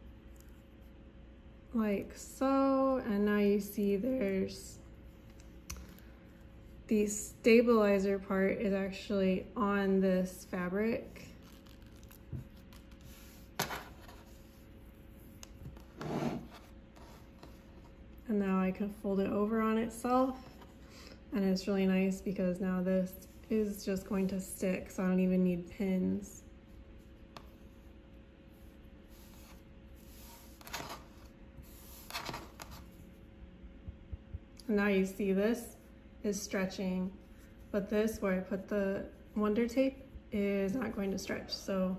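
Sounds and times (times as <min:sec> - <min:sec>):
faint hum: 0:00.0 - 0:41.9
soft fabric rustle: 0:10.8 - 0:18.1.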